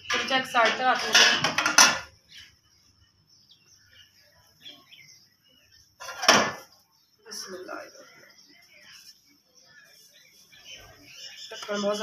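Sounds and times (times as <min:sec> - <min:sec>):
metal pot lid clattering: 0:00.0 - 0:02.1
faint bird chirps: 0:02.1 - 0:12.0.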